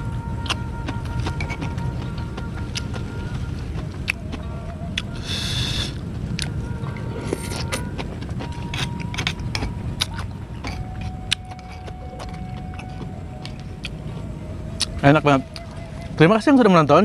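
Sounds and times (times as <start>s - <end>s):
low rumble: 0.0s - 17.0s
crunching and chewing: 6.3s - 14.2s.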